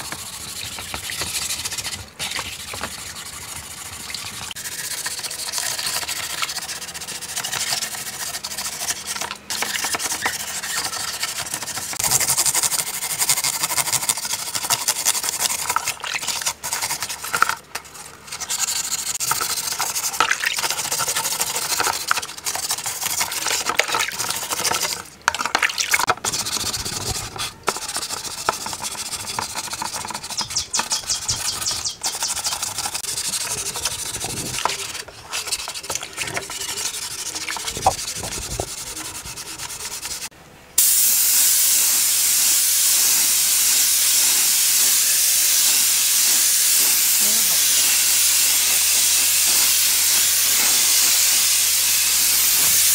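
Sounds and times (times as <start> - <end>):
scouring pad scrubbing metal: 0.0 - 40.3.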